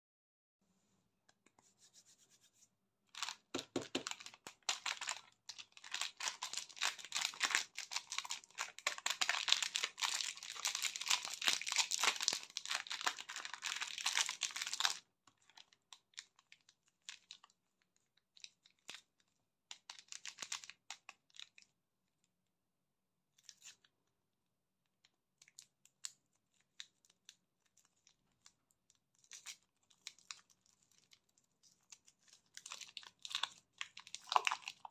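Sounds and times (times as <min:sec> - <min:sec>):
plastic wrapper crinkling and tearing: 0:03.1 - 0:21.7, 0:24.9 - 0:34.9.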